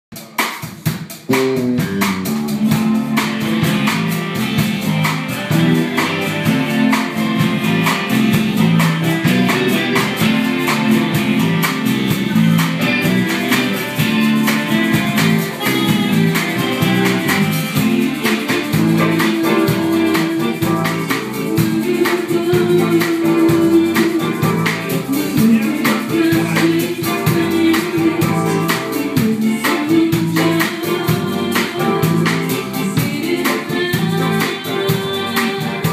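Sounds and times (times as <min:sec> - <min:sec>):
drums keeping a steady beat: 0:00.1 - 0:35.9
electric bass guitar: 0:01.1 - 0:35.9
keyboard: 0:01.2 - 0:35.9
person singing: 0:13.5 - 0:35.9.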